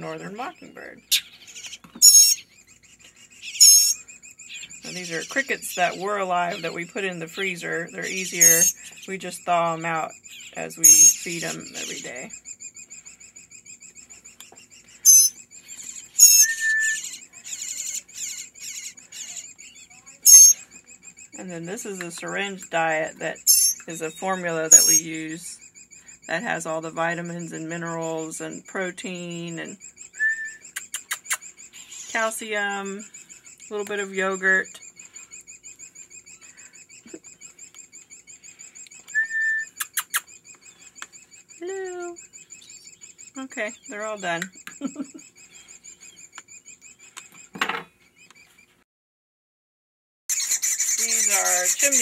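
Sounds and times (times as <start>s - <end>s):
shrill begging calls: 0.0s - 47.5s, 50.3s - 52.0s
nestling birds cheeping: 0.0s - 48.8s, 50.3s - 52.0s
sharp clicks: 30.6s - 31.5s, 39.8s - 41.2s.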